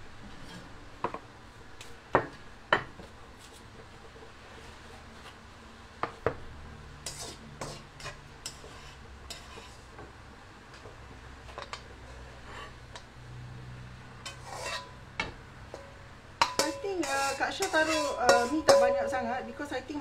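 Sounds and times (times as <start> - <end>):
low steady hum: 12.5 - 20.0
metal utensils clinking on a wok: 14.2 - 15.0, 15.7 - 19.7.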